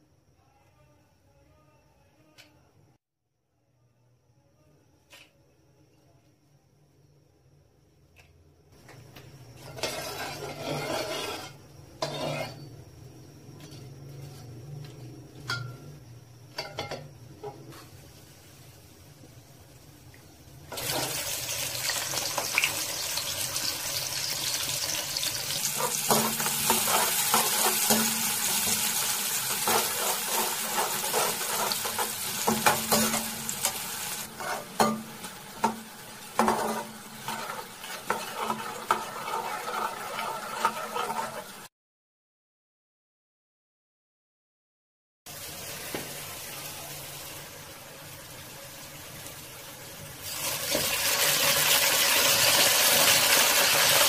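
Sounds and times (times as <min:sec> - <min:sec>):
onions sizzling in hot oil: 0:09.5 - 0:12.6, 0:17.7 - 0:41.7, 0:45.3 - 0:54.0
metal spoon scraping a pot: 0:09.6 - 0:12.7, 0:29.5 - 0:33.3, 0:34.3 - 0:35.0, 0:36.5 - 0:41.7.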